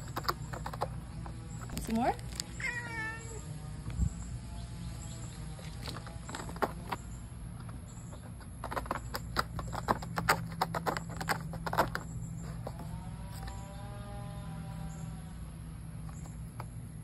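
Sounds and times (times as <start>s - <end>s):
cat scratching cardboard: 0.0s - 3.2s, 5.4s - 14.8s.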